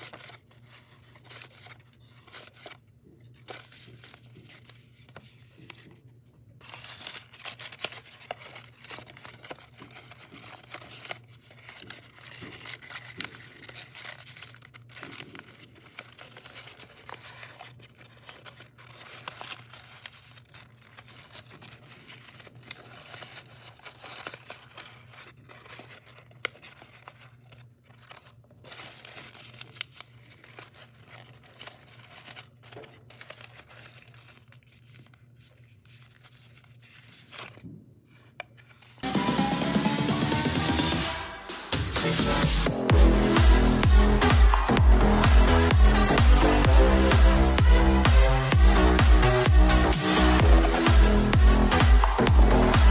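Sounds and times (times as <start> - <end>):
paper crinkling and rustling: 0.0 - 39.0.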